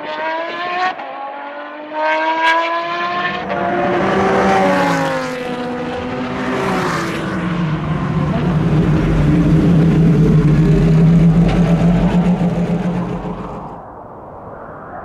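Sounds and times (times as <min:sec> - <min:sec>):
car engine passing by: 0:02.0 - 0:13.9.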